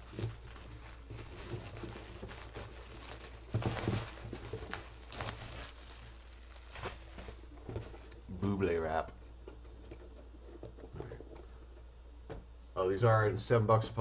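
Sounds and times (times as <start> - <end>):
bubble wrap crinkling: 0.0 - 11.8.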